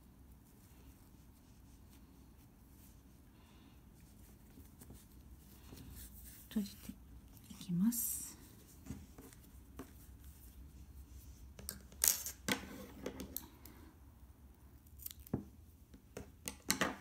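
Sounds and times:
yarn and fabric handling: 0.0 - 13.8.

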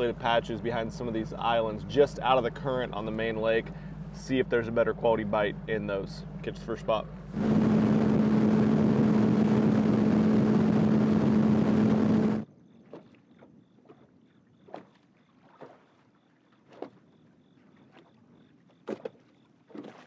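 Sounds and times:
outboard motor running: 0.0 - 20.0
wind and water rushing: 6.9 - 12.4.

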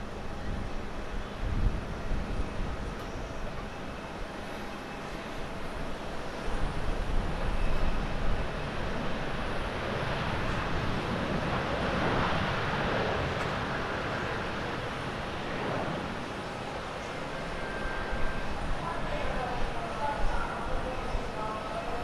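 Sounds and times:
jet engines rushing: 0.0 - 22.0.

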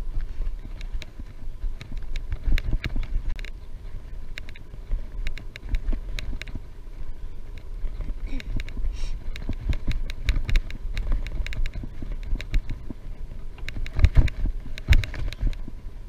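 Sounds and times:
wind buffeting microphone: 0.0 - 16.0
sharp clicks: 4.3 - 6.6.

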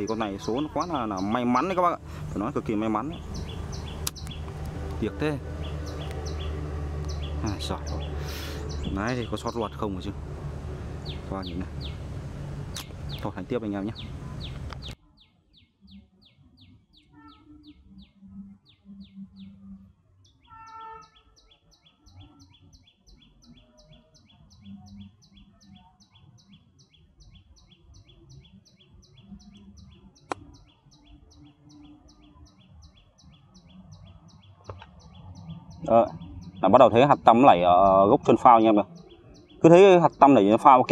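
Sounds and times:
rapid high chirping: 0.0 - 10.2
higher chirps: 0.0 - 14.9
sharp click: 4.0 - 4.7.

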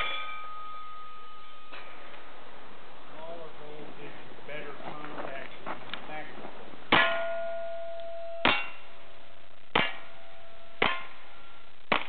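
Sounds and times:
steel target ringing: 0.0 - 2.0, 6.9 - 12.0.

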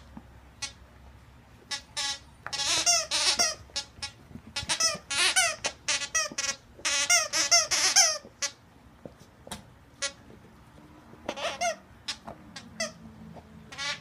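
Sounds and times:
dog toy squeaking: 1.7 - 8.6, 10.0 - 10.2, 11.2 - 13.0, 13.7 - 14.0.

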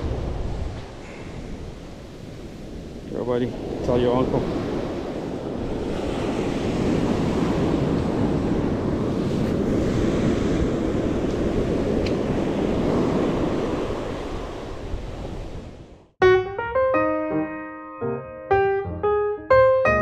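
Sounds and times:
surf washing up beach: 0.0 - 15.9
wind buffeting microphone: 0.0 - 16.1
piano music: 16.2 - 20.0.

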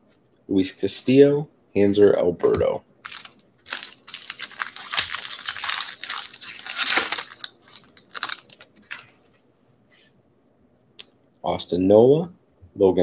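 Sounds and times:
plastic wrapper tearing and crinkling: 3.0 - 9.1.

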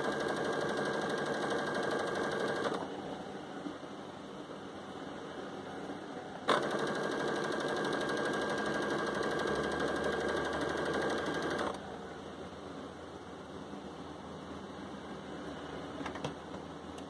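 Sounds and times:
sewing machine stitching: 0.0 - 2.9, 6.5 - 11.8.

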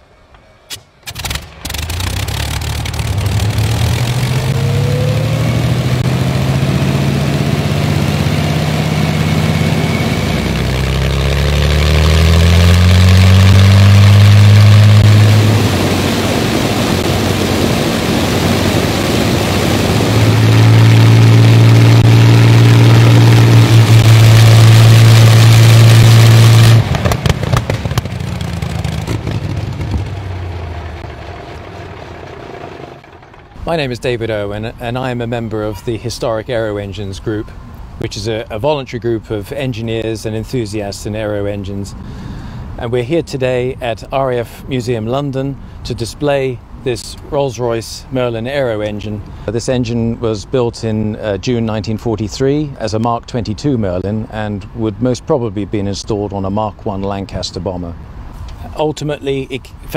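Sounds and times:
propeller aero engine running: 0.0 - 36.2
engine sharp pops: 0.3 - 4.3, 23.5 - 33.6.

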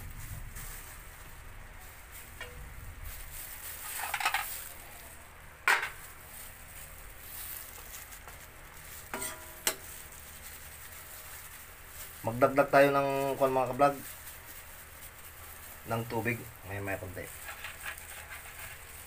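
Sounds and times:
metal utensil scraping wok: 3.4 - 4.8, 9.0 - 10.2, 17.2 - 19.0.

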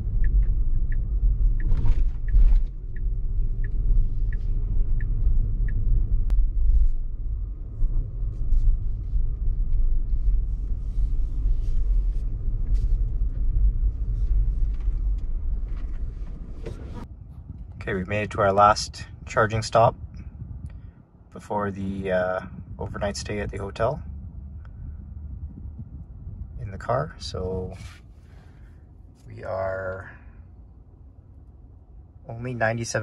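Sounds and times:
turn signal ticking: 0.0 - 6.4
road and tyre rumble: 0.0 - 33.0.

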